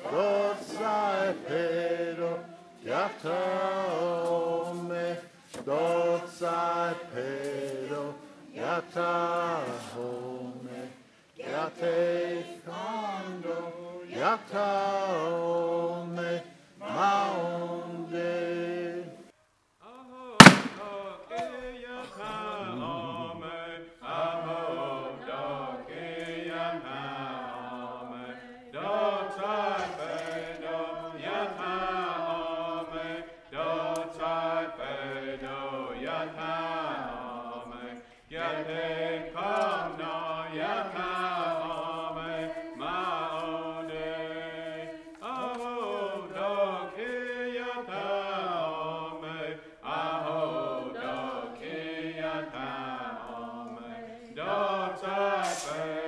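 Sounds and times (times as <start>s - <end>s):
voices chanting: 0.0s - 19.3s, 20.4s - 56.0s.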